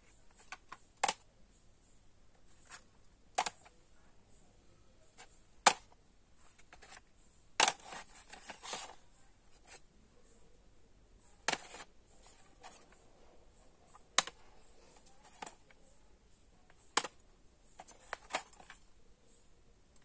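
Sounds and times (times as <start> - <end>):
plastic cassette cases clicking: 0.3 - 1.3, 3.4 - 3.7, 5.6 - 6.0, 7.6 - 9.0, 11.4 - 13.0, 14.2 - 14.4, 16.8 - 17.2, 17.8 - 18.9.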